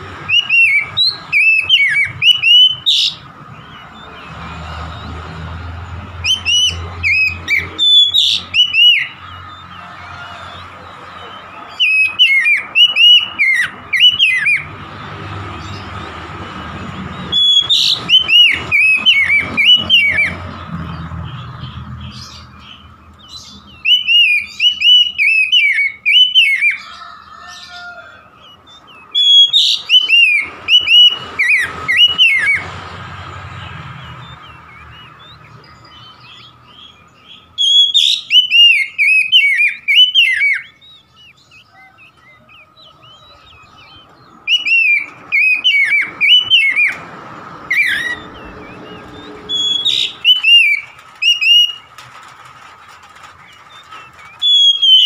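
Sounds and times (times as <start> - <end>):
bird singing whistled notes: 0.2 - 4.4, 6.2 - 9.4, 11.6 - 14.7, 17.1 - 20.4, 21.2 - 26.9, 28.6 - 32.7, 33.6 - 47.0, 47.6 - 51.9, 53.5 - 55.0.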